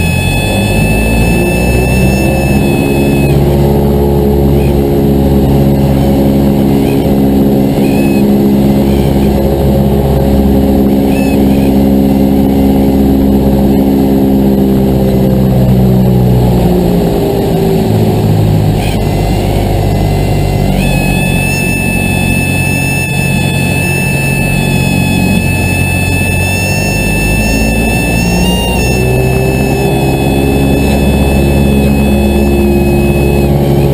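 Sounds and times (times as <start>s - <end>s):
thin steady high tone: 0.0s - 3.6s, 19.0s - 33.9s
airplane engine and propeller: 0.0s - 33.9s.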